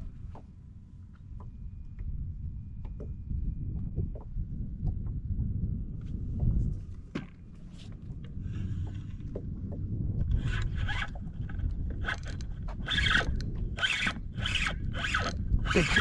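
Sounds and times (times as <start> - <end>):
fishing reel rasping: 12.0 - 16.0.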